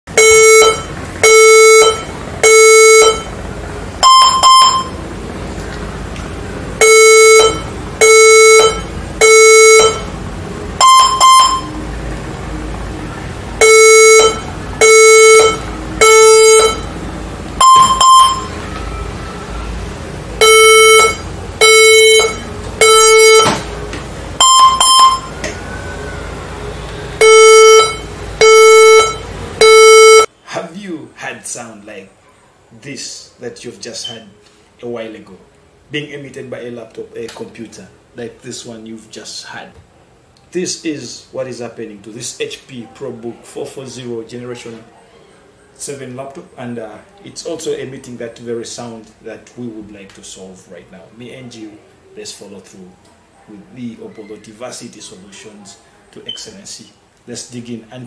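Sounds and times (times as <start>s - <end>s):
laptop warning beeps: 0.1s - 3.4s, 4.0s - 5.0s, 6.8s - 10.1s, 10.8s - 11.9s, 13.6s - 17.0s, 17.6s - 18.6s, 20.4s - 23.6s, 24.4s - 25.6s, 27.2s - 30.3s.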